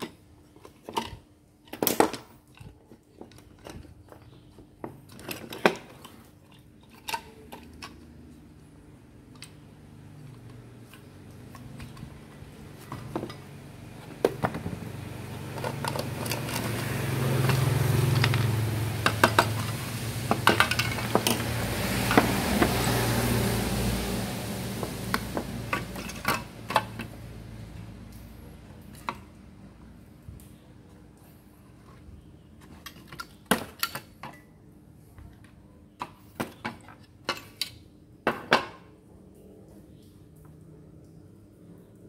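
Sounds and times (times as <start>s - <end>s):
plastic parts clattering on workbench: 0.0s - 8.2s, 10.3s - 22.7s
low hum with hiss: 0.0s - 42.0s.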